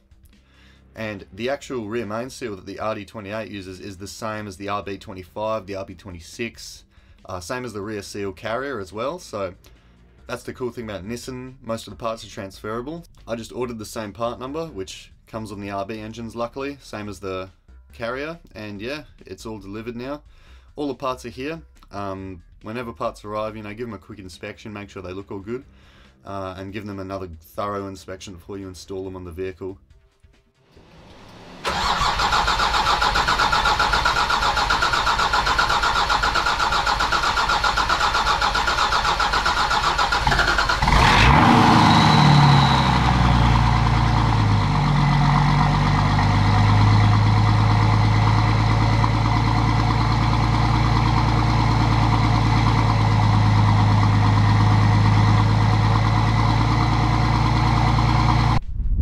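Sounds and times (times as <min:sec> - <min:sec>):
diesel engine cranking and idling: 0:30.8 - 0:58.6.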